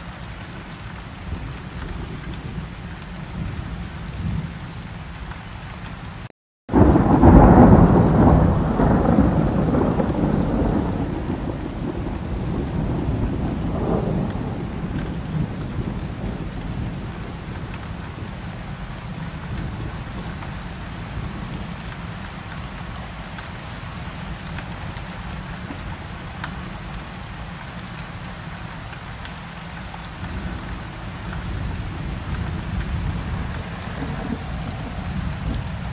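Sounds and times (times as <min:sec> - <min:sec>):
steady rain falling: 0:00.0 - 0:35.9
thunder rolling: 0:06.7 - 0:18.4, 0:30.3 - 0:35.9.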